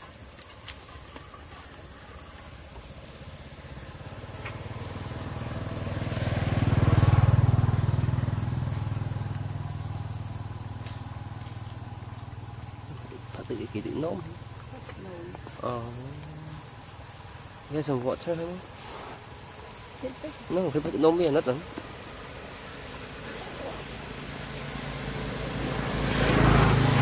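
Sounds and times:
vehicle engine passing by: 0:03.0 - 0:14.5, 0:18.0 - 0:27.0.

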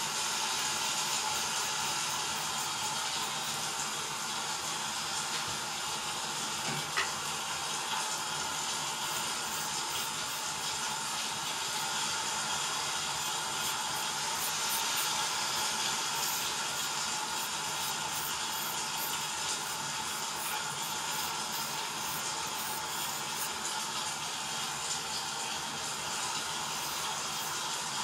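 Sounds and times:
steady hiss: 0:08.7 - 0:24.0, 0:26.1 - 0:28.0.

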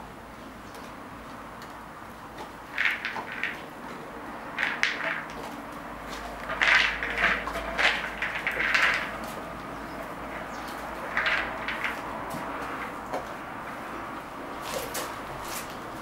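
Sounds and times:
horse crunching treats: 0:02.4 - 0:13.4, 0:14.6 - 0:16.0
treat ball rattling: 0:02.7 - 0:03.9, 0:04.5 - 0:13.7.

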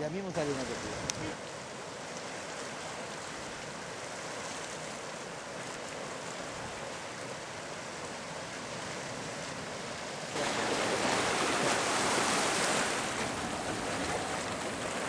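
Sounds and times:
surf washing over rocks: 0:00.0 - 0:15.0
wind: 0:00.0 - 0:15.0.

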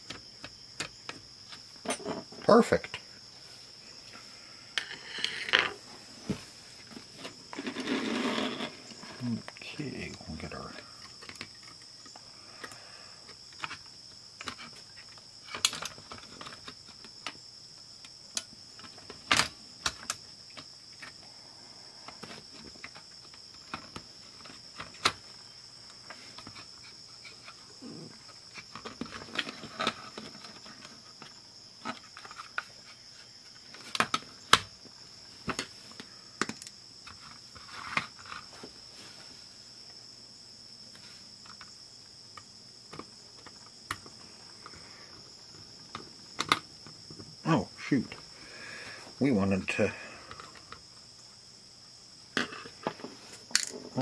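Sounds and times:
steady high-pitched hiss: 0:00.0 - 0:54.0
sharp plastic snaps: 0:45.9 - 0:46.7.

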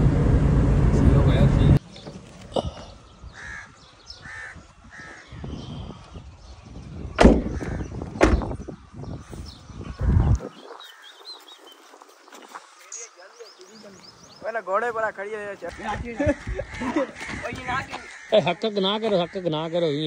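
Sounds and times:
crows cawing: 0:03.3 - 0:05.6, 0:07.4 - 0:08.0, 0:10.8 - 0:11.4, 0:15.3 - 0:20.0.

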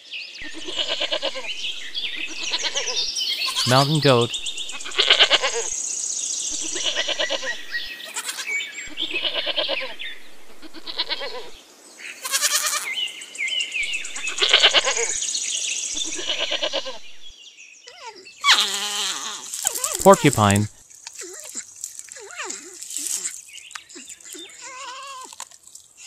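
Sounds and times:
goats bleating: 0:00.6 - 0:01.5, 0:02.2 - 0:05.7, 0:06.6 - 0:09.8, 0:10.6 - 0:11.5, 0:12.2 - 0:12.9, 0:16.0 - 0:17.0.

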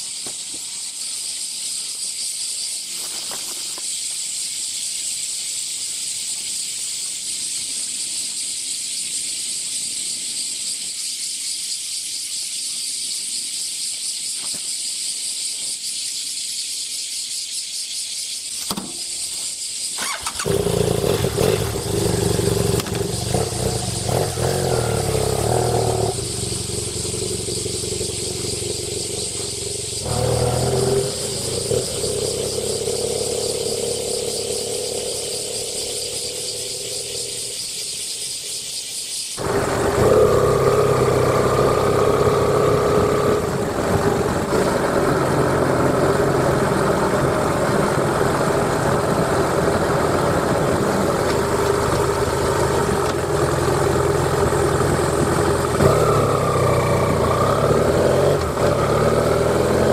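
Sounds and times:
cicadas buzzing: 0:00.0 - 0:59.9
motorcycle engine revving: 0:20.0 - 0:38.2, 0:39.4 - 0:59.9.

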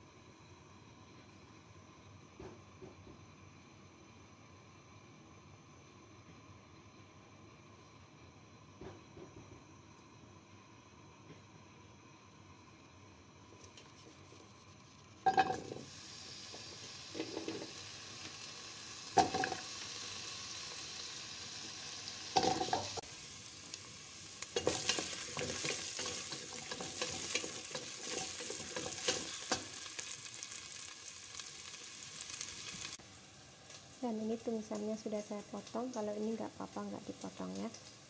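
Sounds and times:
vegetables sizzling in oil: 0:11.0 - 0:38.0.

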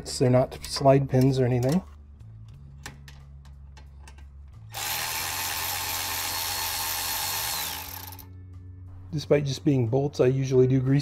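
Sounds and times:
power tool running: 0:04.7 - 0:08.3.

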